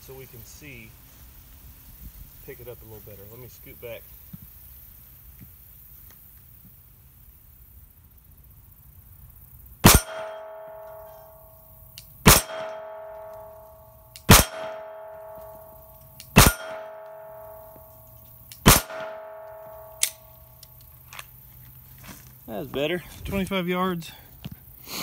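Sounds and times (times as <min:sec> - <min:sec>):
pistol shots: 0:09.8 - 0:11.2, 0:12.3 - 0:13.6, 0:14.2 - 0:15.7, 0:16.3 - 0:17.6, 0:18.5 - 0:20.3
steel plate ringing: 0:09.8 - 0:20.6.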